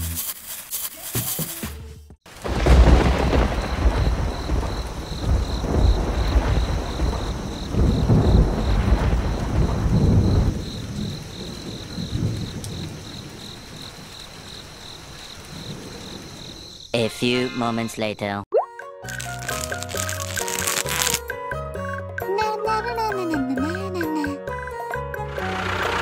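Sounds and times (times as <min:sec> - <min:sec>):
steady rain: 0:02.3 - 0:16.8, 0:19.1 - 0:21.2
thunder rumbling: 0:02.3 - 0:16.8.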